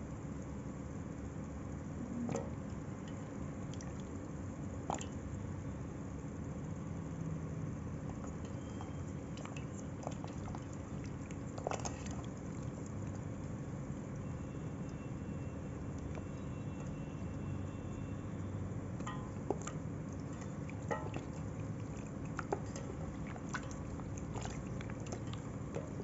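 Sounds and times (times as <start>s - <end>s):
low background hum: 0.0s - 26.0s
wet clay squishing and dripping: 2.0s - 5.5s, 8.0s - 26.0s
short clicks and splats: 8.0s - 26.0s.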